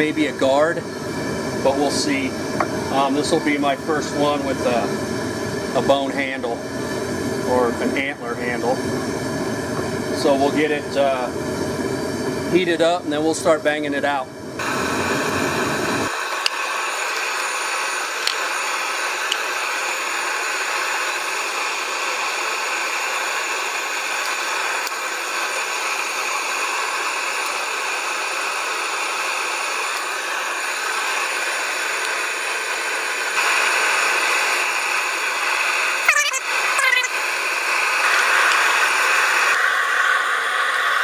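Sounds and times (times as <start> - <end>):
gas forge burner hissing: 0.0 - 41.0.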